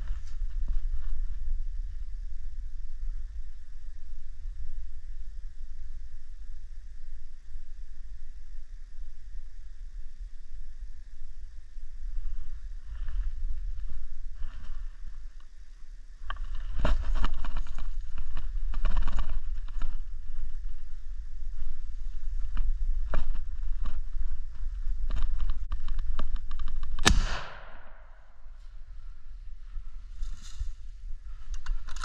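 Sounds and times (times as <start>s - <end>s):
rustling and handling noise: 12.2s - 15.6s, 16.2s - 27.0s, 29.8s - 32.0s
loud gunshot echoing: 27.0s - 28.2s.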